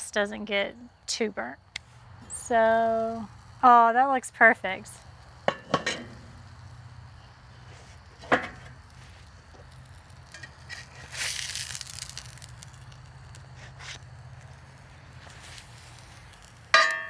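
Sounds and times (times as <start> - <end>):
spatula scraping cast iron skillet: 5.5 - 6.2.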